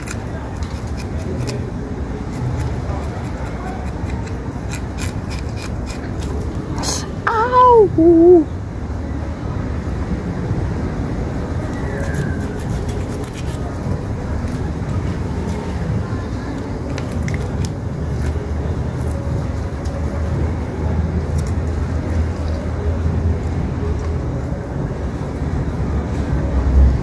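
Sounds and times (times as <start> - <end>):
knife scraping fish scales: 0.0 - 1.7, 2.3 - 6.5, 11.9 - 13.8
steady low rumble: 4.2 - 27.0.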